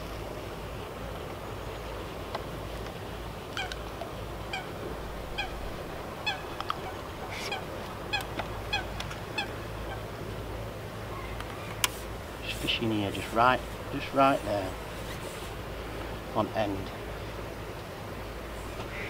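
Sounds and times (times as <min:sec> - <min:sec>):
geese honking: 0:04.5 - 0:10.1.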